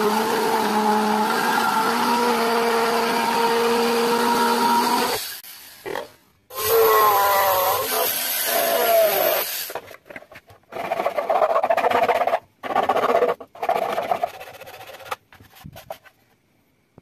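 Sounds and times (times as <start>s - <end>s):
tool working plastic hull: 8.2s - 15.2s.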